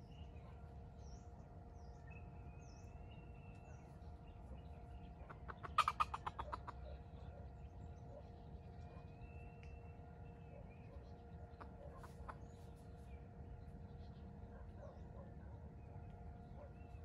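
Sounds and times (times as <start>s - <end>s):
junglefowl clucking: 5.2s - 7.4s, 11.5s - 12.5s.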